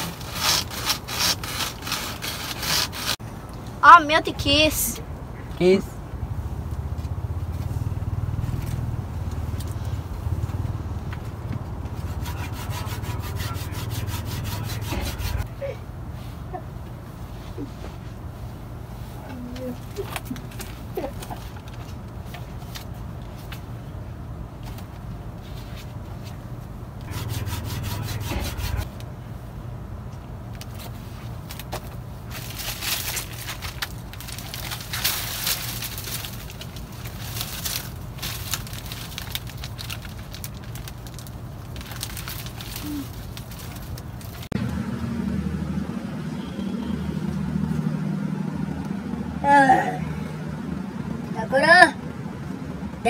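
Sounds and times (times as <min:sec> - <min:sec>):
rubbing and scraping handling noise: 0:00.0 - 0:03.2, 0:09.5 - 0:15.5, 0:24.6 - 0:29.0, 0:30.6 - 0:44.6
steady low hum: 0:02.9 - 0:20.0, 0:26.0 - 0:30.2
low drone: 0:44.5 - 0:51.4.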